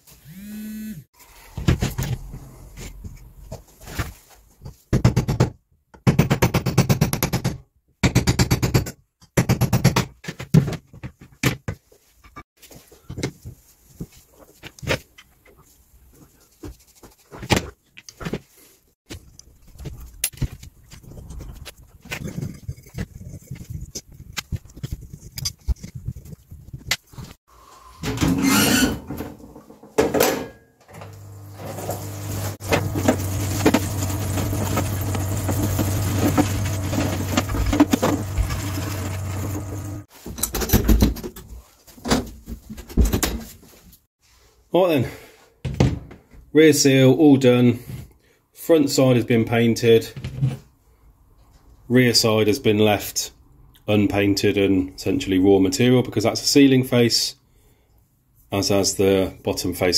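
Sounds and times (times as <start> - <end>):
scrubbing with pad and brush: 15.6 - 17.5, 31.5 - 40.2
pump humming: 31.1 - 40.0.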